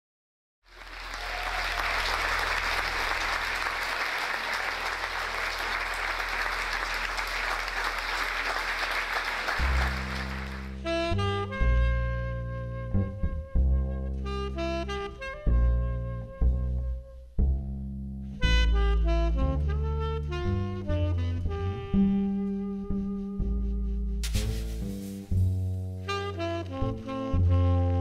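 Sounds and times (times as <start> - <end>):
audience applause: 0.7 - 10.8
saxophone: 0.8 - 17.2, 18.4 - 24.2, 26.0 - 28.0
double bass playing: 9.6 - 28.0.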